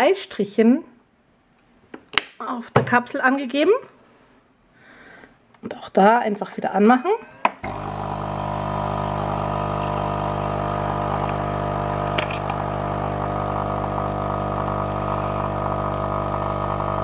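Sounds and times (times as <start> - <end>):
coffee machine pump running: 7.6 - 17.0
coffee pouring into glass: 7.6 - 17.0.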